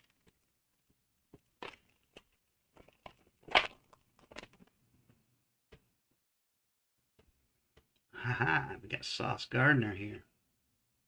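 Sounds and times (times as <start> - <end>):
foil wrapper crinkling and tearing: 0.0 - 4.7.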